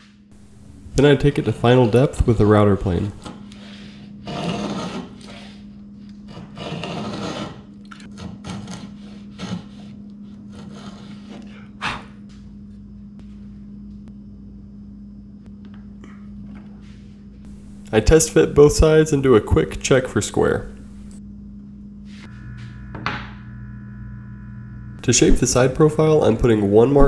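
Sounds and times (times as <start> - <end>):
plane scraping wood: 4.2 - 5.4, 6.2 - 9.9, 10.5 - 11.5.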